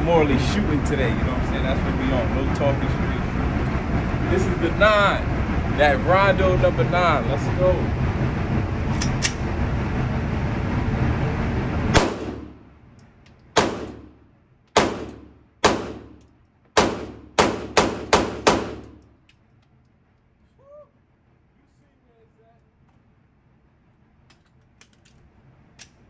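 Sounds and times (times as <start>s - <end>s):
loud rushing noise: 0.0s - 12.9s
pistol shots with ringing echo: 12.0s - 12.5s, 13.6s - 14.2s, 14.8s - 16.2s, 16.8s - 19.0s.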